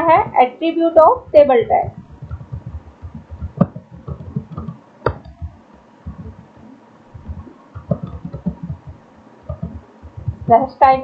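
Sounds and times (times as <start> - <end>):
keyboard typing: 1.8 - 6.6, 7.2 - 10.7.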